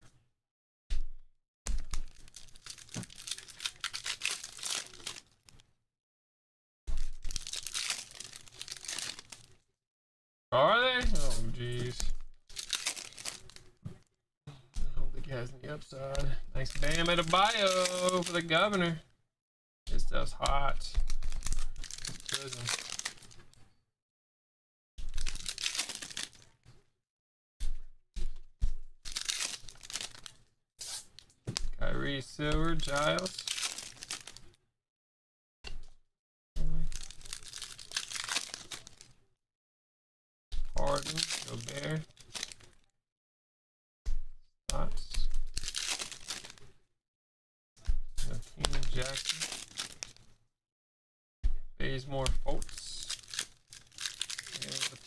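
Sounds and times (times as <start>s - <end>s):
foil wrappers crinkling: 1.8s - 5.6s, 7.0s - 9.6s, 11.0s - 13.8s, 16.2s - 19.0s, 20.9s - 23.6s, 25.0s - 26.6s, 29.1s - 31.4s, 32.5s - 34.6s, 36.8s - 39.2s, 40.6s - 42.9s, 45.0s - 46.7s, 48.6s - 50.3s, 52.4s - 55.0s.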